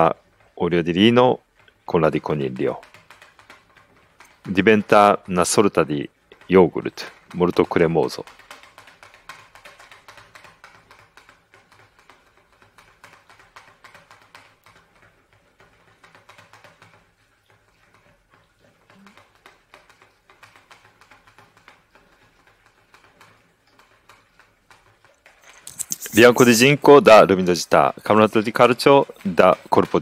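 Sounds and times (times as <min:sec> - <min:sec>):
whisk tapping plastic jug: 0:00.0 - 0:30.0.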